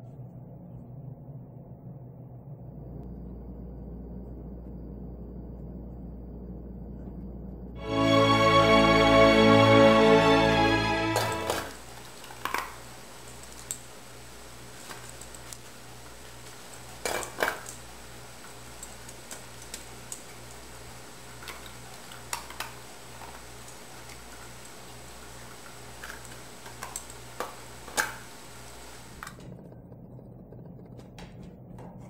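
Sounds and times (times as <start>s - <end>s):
low hum: 0.0s - 11.8s.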